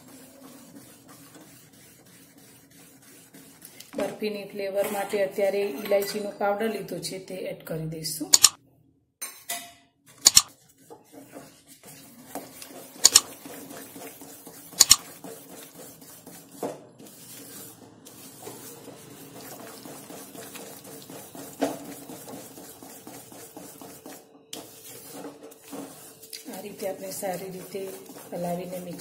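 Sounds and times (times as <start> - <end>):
spatula scraping sticky dough: 0.0 - 4.1, 10.3 - 29.0.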